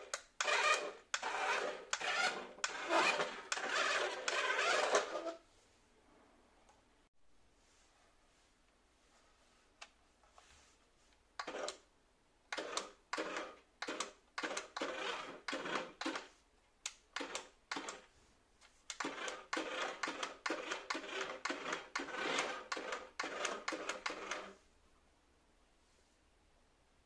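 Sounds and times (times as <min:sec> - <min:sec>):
toy car motor whirring: 0:00.1 - 0:05.4, 0:12.6 - 0:16.2, 0:18.9 - 0:24.6.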